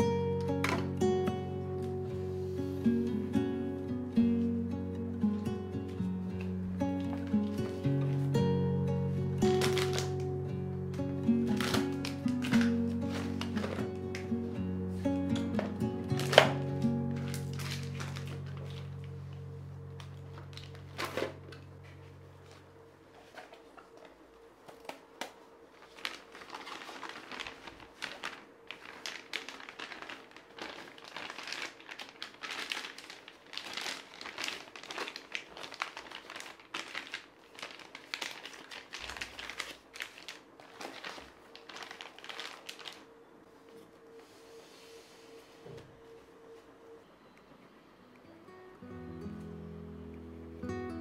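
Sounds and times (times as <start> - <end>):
crinkling plastic and paper: 0.0 - 44.6
rustling through wicker basket: 11.5 - 24.8, 25.6 - 46.7.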